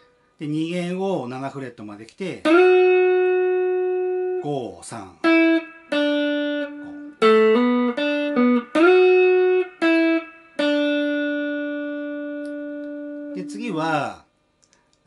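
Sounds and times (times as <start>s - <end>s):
electric guitar phrase: 2.4s - 14.2s.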